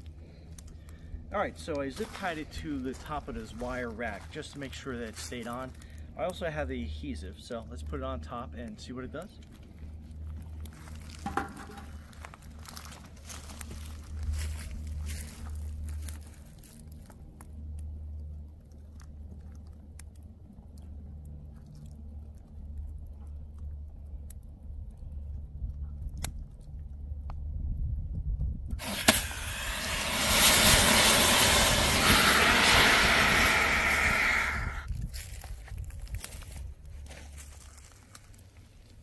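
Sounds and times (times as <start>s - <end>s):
wood fire crackling: 9.1s - 25.2s, 28.8s - 34.9s
low rumble: 27.1s - 36.5s
fire extinguisher pop: 28.8s - 32.3s
fire extinguisher hissing: 28.8s - 34.9s.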